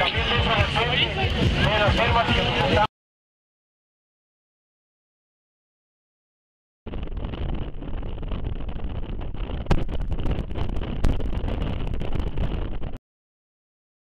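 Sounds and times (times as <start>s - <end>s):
wind buffeting microphone: 6.9s - 13.0s.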